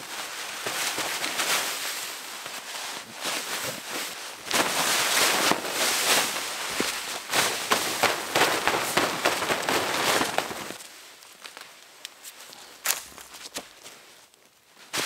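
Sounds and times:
snow scraping and crunching: 0:00.0 - 0:11.6
tarp flapping and rustling: 0:00.0 - 0:11.7, 0:14.8 - 0:15.0.

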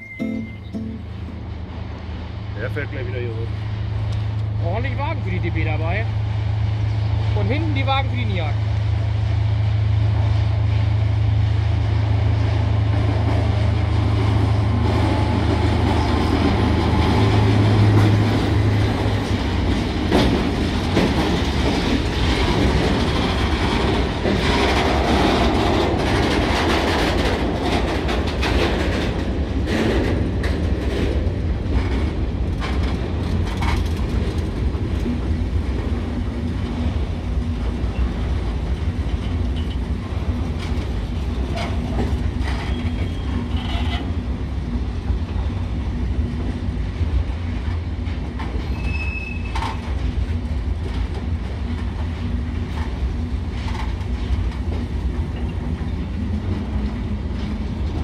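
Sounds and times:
diesel locomotive engine drone: 0:00.0 - 0:58.0
train wagons clattering over rail joints: 0:12.8 - 0:58.0.

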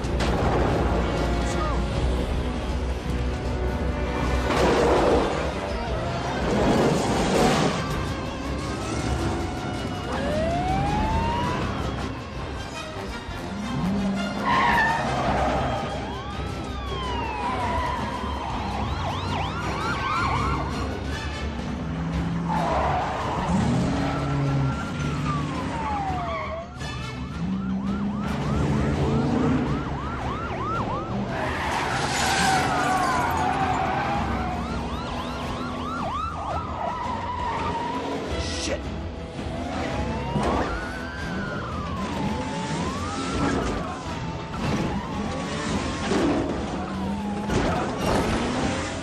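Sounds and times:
car engines revving: 0:00.0 - 0:49.0
police sirens wailing and yelping: 0:00.0 - 0:49.0
road noise: 0:00.0 - 0:49.0.

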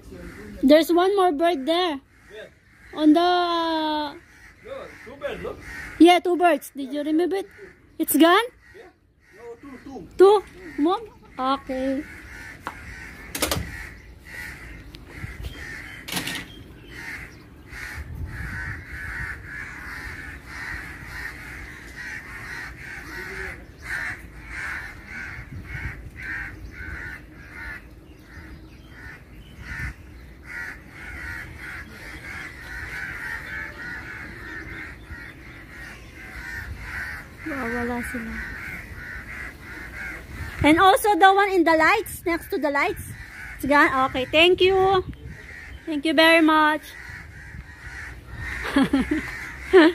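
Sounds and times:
crows cawing: 0:00.0 - 0:49.9.

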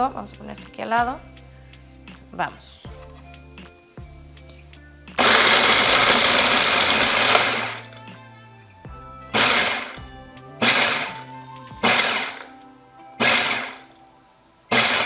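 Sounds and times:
food processor chopping nuts: 0:05.2 - 0:07.9, 0:09.4 - 0:09.9, 0:10.6 - 0:11.2, 0:11.8 - 0:12.4, 0:13.2 - 0:13.8, 0:14.7 - 0:15.0.

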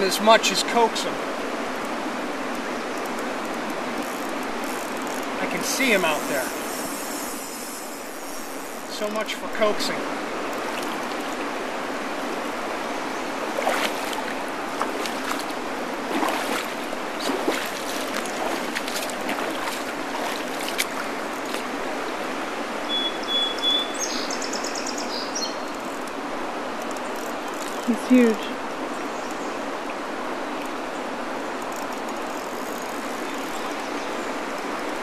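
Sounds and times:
river current rippling: 0:00.0 - 0:35.0
small water splashes: 0:10.1 - 0:22.9.

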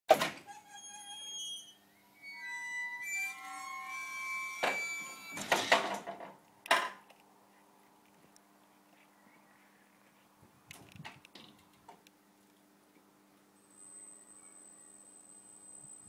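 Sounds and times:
high squeaks of tail lift: 0:00.4 - 0:05.9.

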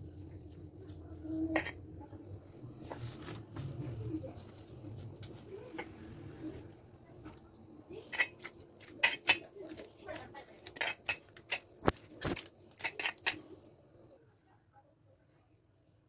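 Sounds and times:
glass bangles clinking: 0:08.1 - 0:09.5, 0:10.6 - 0:13.6.

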